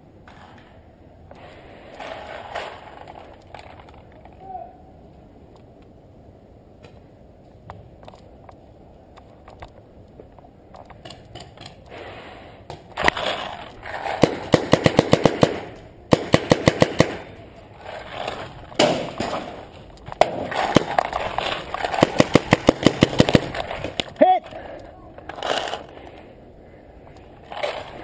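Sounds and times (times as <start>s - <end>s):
paintball markers firing: 12.7s - 17.4s, 18.8s - 24.1s.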